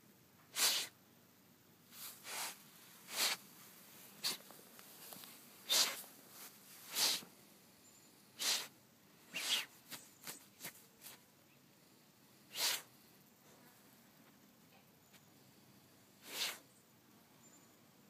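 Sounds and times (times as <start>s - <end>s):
dog snorting and sniffing: 0.5s - 0.9s, 2.2s - 3.4s, 4.2s - 4.5s, 5.6s - 6.1s, 6.9s - 7.3s, 8.4s - 8.7s, 9.3s - 11.2s, 12.5s - 12.9s, 16.2s - 16.6s.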